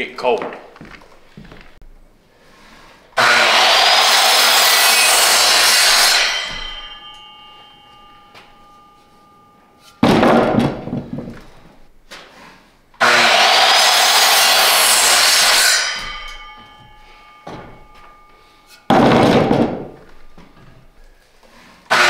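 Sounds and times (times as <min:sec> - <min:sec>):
power saw cutting wood: 0:03.1 - 0:08.9, 0:12.4 - 0:18.9, 0:21.4 - 0:22.0
loud knocks: 0:10.0 - 0:11.5, 0:18.9 - 0:20.5.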